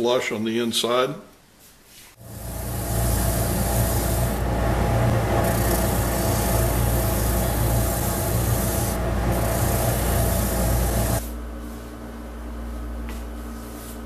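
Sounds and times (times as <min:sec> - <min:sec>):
motor hum: 0:02.2 - 0:11.2
sanding drum rasping: 0:02.2 - 0:11.2.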